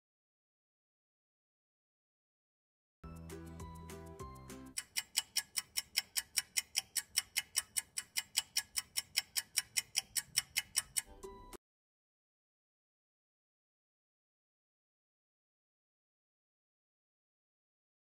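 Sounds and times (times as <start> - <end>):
cheerful music: 3.0 - 4.8, 11.0 - 11.6
fast clock-like ticking: 4.7 - 11.1.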